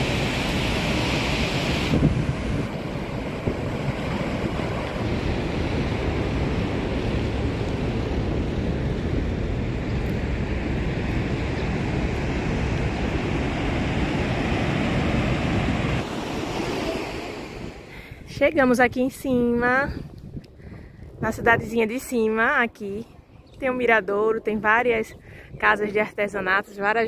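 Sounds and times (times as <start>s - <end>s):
heavy ocean surf breaking: 0.0s - 19.8s
wind buffeting microphone: 0.0s - 27.0s.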